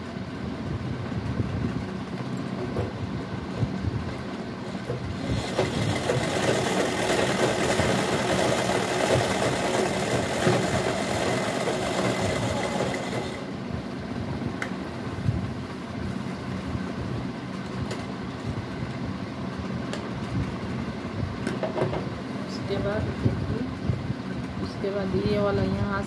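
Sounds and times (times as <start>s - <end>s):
sewing machine stitching: 5.2s - 13.5s.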